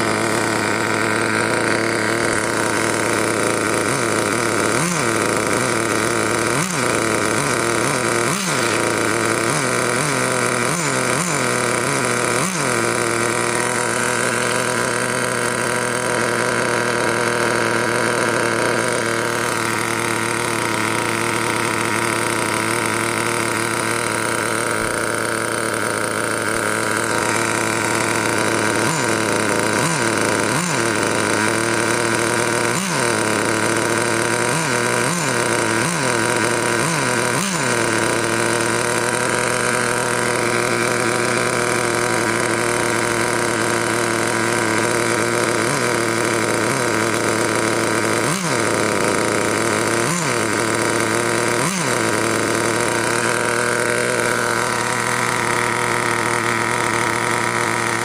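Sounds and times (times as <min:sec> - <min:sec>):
nitro engine idling and revving: 0:00.0 - 0:58.0.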